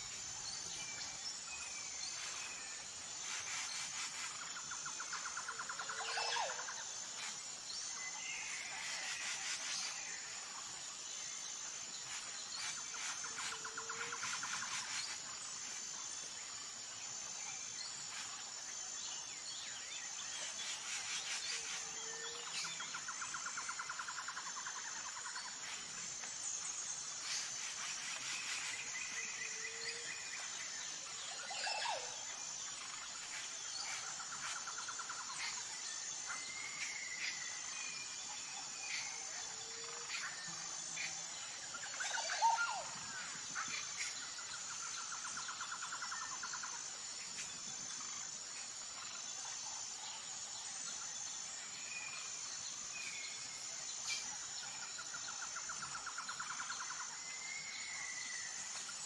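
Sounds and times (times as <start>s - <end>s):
high insect drone: 0.0s - 59.0s.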